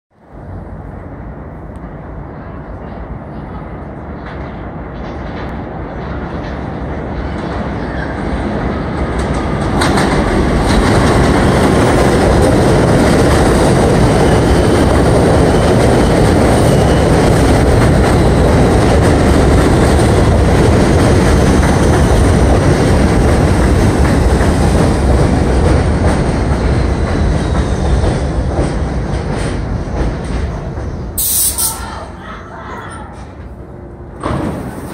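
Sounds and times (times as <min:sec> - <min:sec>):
train wheels clacking over rail joints: 0:09.2 - 0:31.1.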